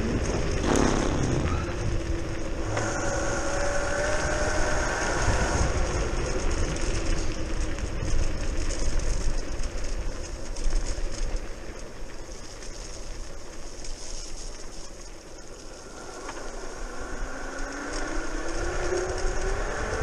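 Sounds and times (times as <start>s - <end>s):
electric motor whine: 0.0s - 9.6s, 13.5s - 20.0s
tyre noise on rough path: 0.0s - 20.0s
wind rumble on microphone: 0.0s - 20.0s.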